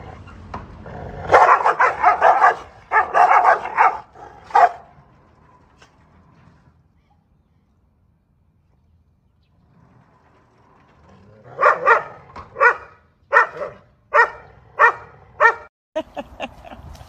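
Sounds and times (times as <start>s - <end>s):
dogs barking aggressively: 0.0s - 5.2s, 11.4s - 15.7s.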